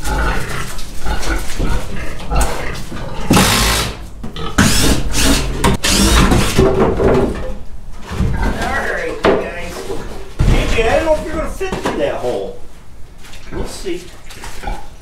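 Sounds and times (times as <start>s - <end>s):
pigs grunting: 0.0s - 6.4s, 13.4s - 15.0s.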